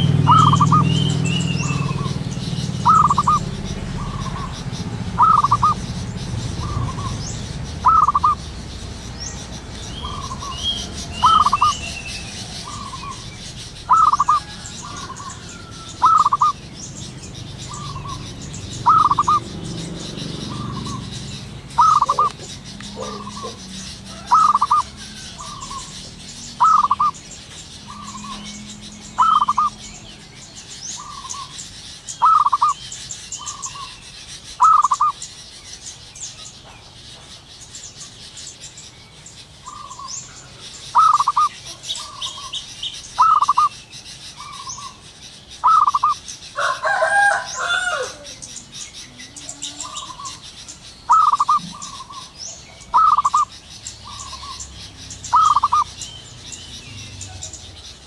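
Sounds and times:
dove cooing: 0.0 - 27.2, 27.9 - 29.8, 32.2 - 32.8, 34.6 - 35.2, 40.9 - 42.6, 43.2 - 43.7, 45.6 - 50.4, 51.1 - 53.5, 55.3 - 55.9
faint high bird chirps: 0.0 - 58.0
rough bird call: 0.0 - 58.0.

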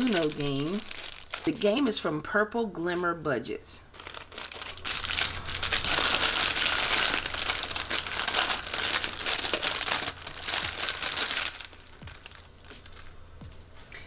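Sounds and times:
plastic bag crinkling: 0.0 - 1.8, 3.9 - 13.2.

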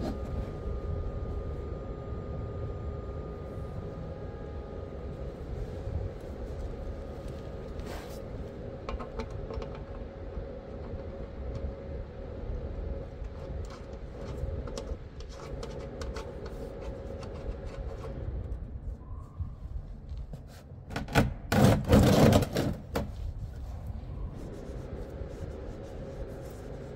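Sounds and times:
steady low rumble: 0.0 - 20.8, 23.1 - 26.9
faint even hum: 23.3 - 26.9.

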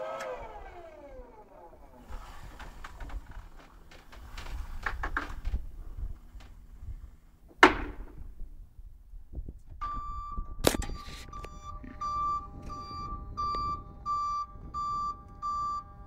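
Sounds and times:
forklift engine rumble: 0.0 - 7.5, 9.6 - 16.0
forklift warning beeper: 9.8 - 16.0.

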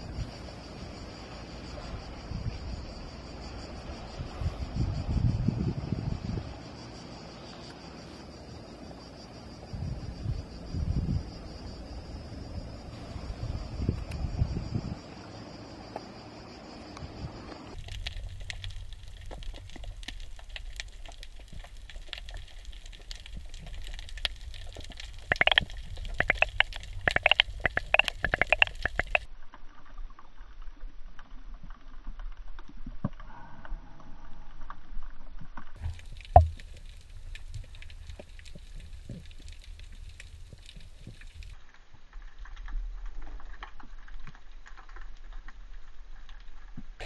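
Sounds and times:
muffled underwater rumble: 0.0 - 6.8, 9.6 - 15.2, 17.0 - 46.2
underwater clicks and crackles: 13.9 - 14.3, 17.6 - 47.0.

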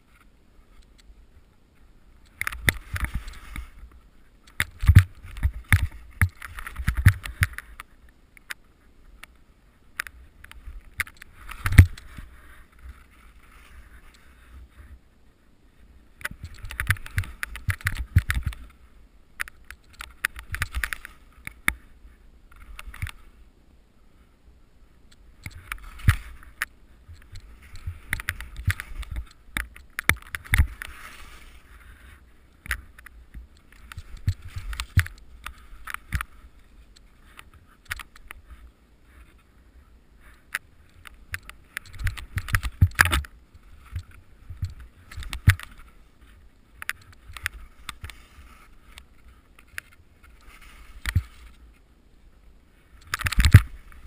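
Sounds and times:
skis swishing through powder snow: 30.6 - 32.5
sharp clicks and knocks: 40.5 - 45.9, 53.0 - 54.0.

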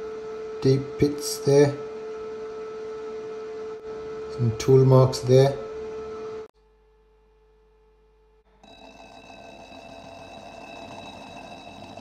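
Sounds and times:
lapping machine whine: 8.5 - 12.0
machine hiss: 8.6 - 12.0.

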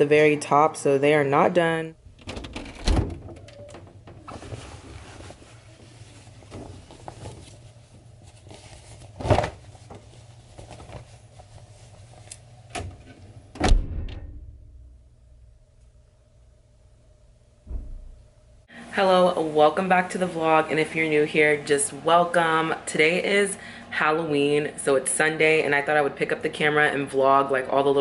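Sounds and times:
low hum: 13.3 - 18.7.

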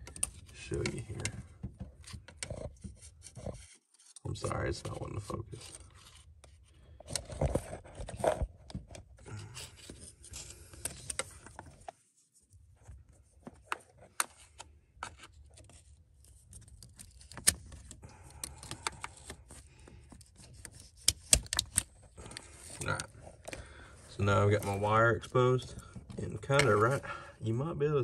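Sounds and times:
pliers clicking and scraping plastic: 20.2 - 22.5.

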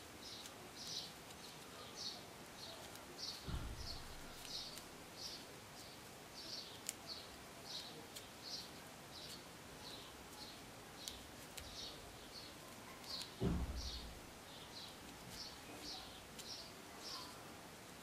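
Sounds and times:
small bird chirping: 0.2 - 17.4
dull low thump: 3.4 - 4.4, 13.4 - 14.2.

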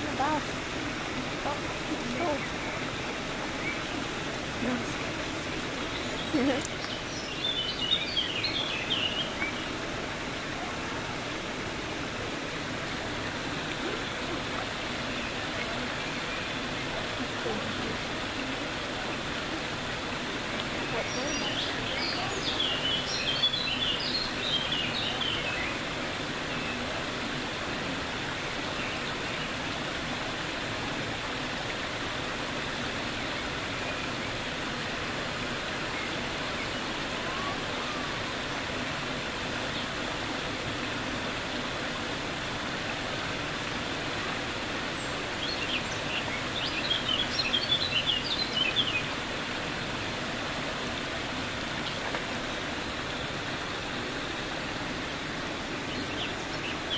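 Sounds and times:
birds twittering: 0.0 - 27.3, 28.2 - 29.9, 32.4 - 38.9, 39.5 - 51.4, 52.4 - 56.9
running water rushing: 0.0 - 56.9.

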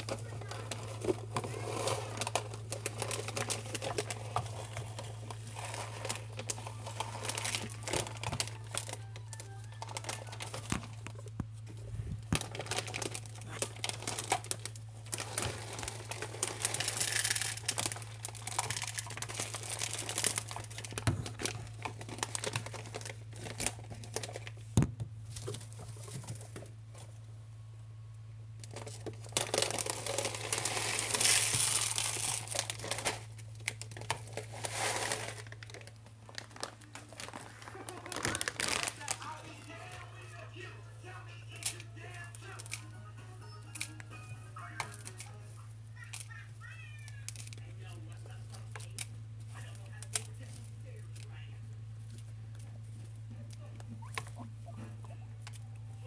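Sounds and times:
plastic bag rustling and crackling: 0.0 - 26.8, 28.6 - 40.7
low hum: 0.0 - 46.6.

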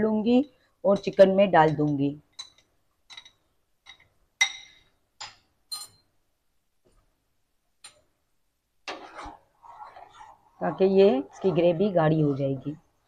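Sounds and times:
metal spoon clinking on glass bowl: 1.0 - 6.1.

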